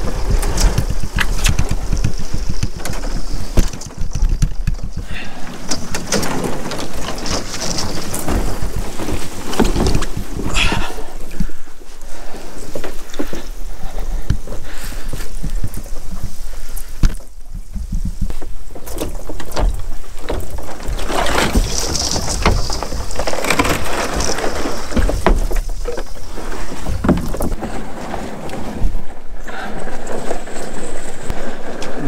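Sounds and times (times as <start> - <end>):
canoe hull scraping wooden boards: 0.0 - 32.0.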